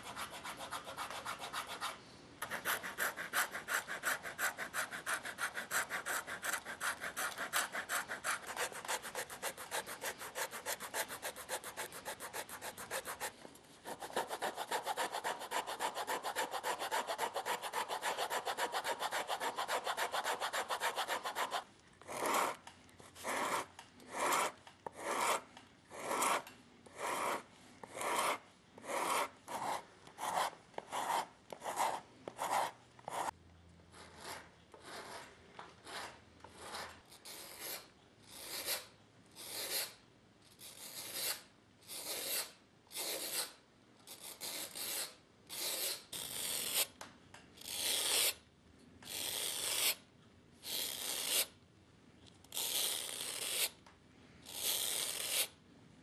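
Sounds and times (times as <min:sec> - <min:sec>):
rasp filing shoe sole: 0:02.4 - 0:13.3, 0:13.9 - 0:22.6, 0:23.2 - 0:25.4, 0:26.0 - 0:33.3.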